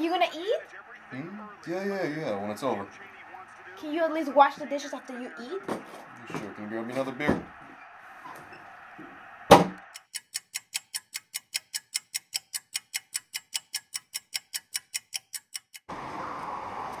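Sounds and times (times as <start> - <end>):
door slamming shut: 9.5 - 9.8
clock ticking quickly: 9.8 - 15.9.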